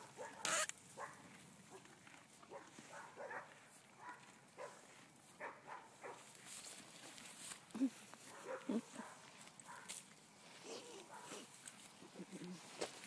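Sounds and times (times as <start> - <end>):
horse cropping and chewing grass: 0.0 - 13.0.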